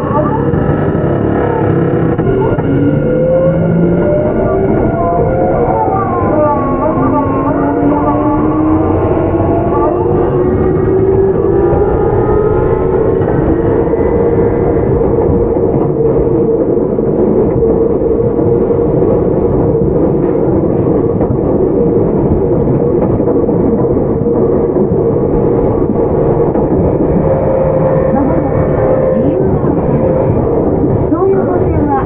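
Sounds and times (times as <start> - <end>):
constant hum: 0.0 - 32.0
electric train inverter whine: 0.0 - 32.0
train wheels rolling on rail: 0.0 - 32.0.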